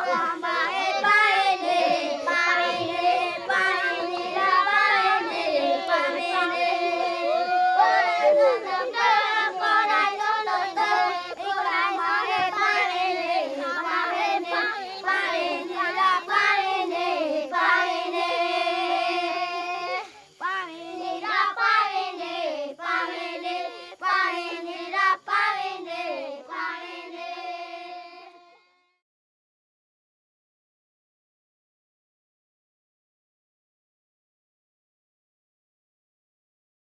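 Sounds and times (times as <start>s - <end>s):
child singing: 0.0s - 28.9s.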